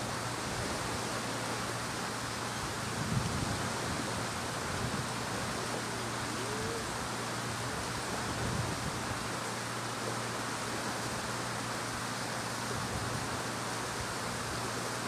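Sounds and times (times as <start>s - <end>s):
background hiss: 0.0s - 15.0s.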